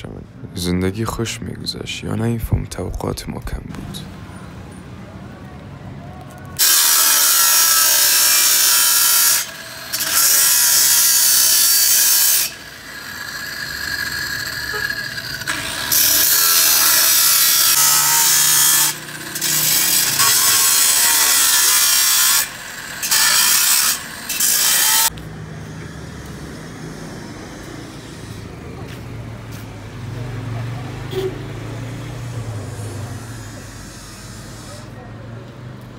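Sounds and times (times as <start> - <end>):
angle grinder cutting steel bar: 6.6 - 25.1, 31.1 - 35.0.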